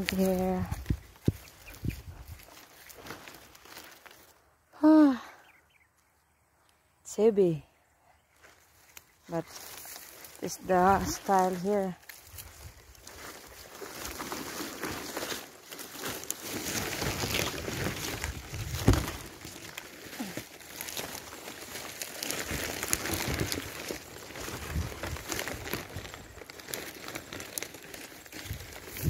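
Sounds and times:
rustling at phone microphone: 9.4s - 19.9s.

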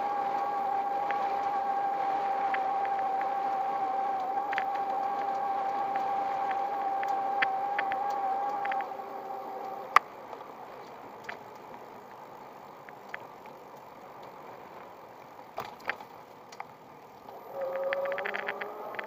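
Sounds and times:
bike rattling over paving: 0.0s - 19.0s
electric motor whine: 0.0s - 19.0s
tyres and wind hissing: 0.0s - 19.0s.

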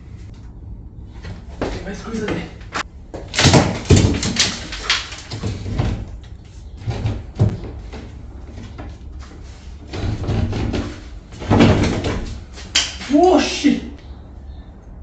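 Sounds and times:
loose boards rattling: 1.6s - 13.6s
stick knocking on wooden ceiling: 3.2s - 6.1s.

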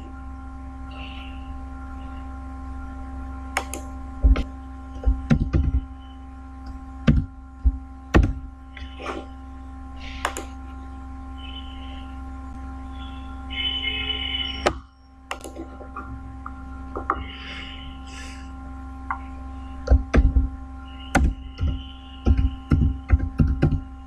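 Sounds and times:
steady electrical hum: 0.0s - 24.0s
mouse clicks: 3.6s - 3.9s, 10.2s - 10.5s.

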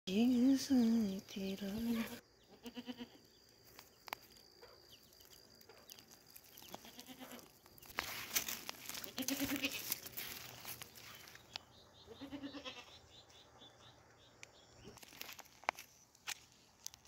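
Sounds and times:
livestock bleating: 1.9s - 3.2s, 6.7s - 7.5s, 9.0s - 10.0s, 12.0s - 13.0s
crackly rustle: 3.2s - 12.8s, 14.4s - 17.0s.

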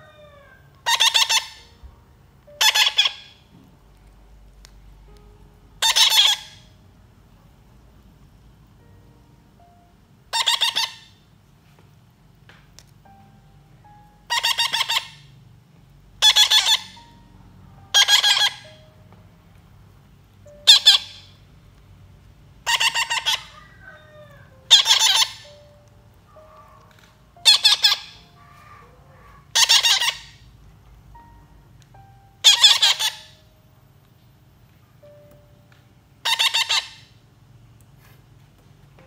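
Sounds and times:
baby parrots begging squawks: 0.0s - 1.7s, 2.5s - 3.4s, 5.8s - 6.7s, 10.3s - 11.2s, 14.3s - 15.3s, 16.2s - 17.1s, 17.9s - 18.8s, 20.6s - 21.3s, 22.6s - 25.6s, 26.3s - 30.4s, 32.4s - 33.4s, 36.2s - 37.1s.

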